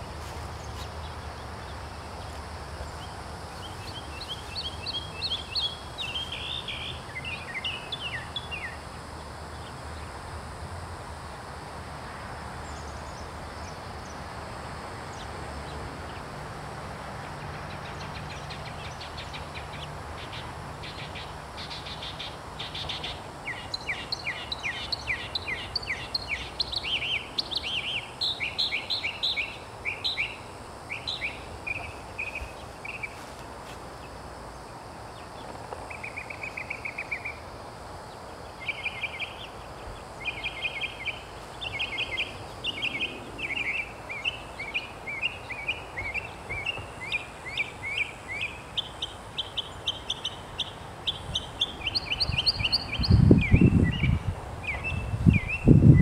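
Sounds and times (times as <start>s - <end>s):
songbird singing: 0.0s - 10.6s, 12.6s - 14.3s, 15.0s - 16.4s, 17.2s - 56.0s.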